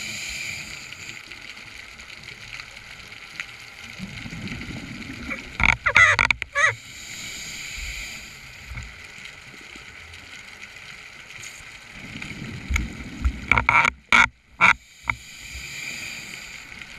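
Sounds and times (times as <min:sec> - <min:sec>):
hiss of regulator breathing: 0:00.0 - 0:01.3, 0:06.7 - 0:08.8, 0:14.8 - 0:16.9
gurgling exhaled bubbles: 0:03.9 - 0:06.7, 0:12.0 - 0:13.7.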